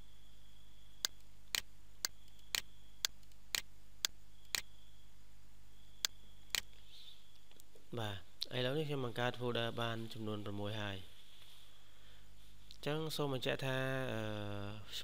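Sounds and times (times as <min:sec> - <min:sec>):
computer mouse clicking: 0:01.0 - 0:04.7, 0:06.0 - 0:06.8.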